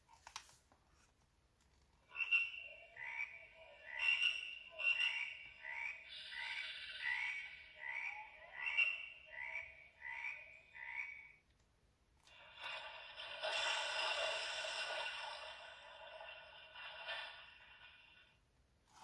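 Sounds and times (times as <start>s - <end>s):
tree frogs croaking from speaker: 2.0s - 11.5s.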